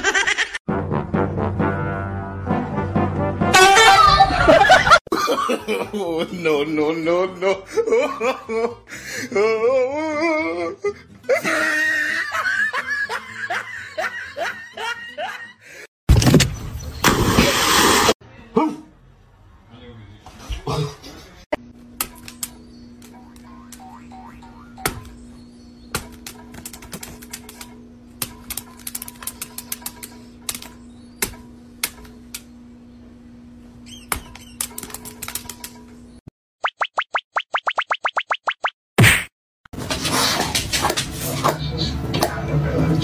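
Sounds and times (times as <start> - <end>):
child giggling: 0.0 - 0.6
child squealing: 3.6 - 4.5.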